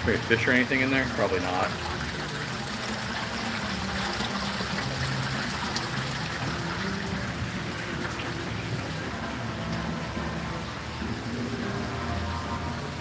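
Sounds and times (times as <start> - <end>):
fountain splashing and trickling: 0.0 - 13.0.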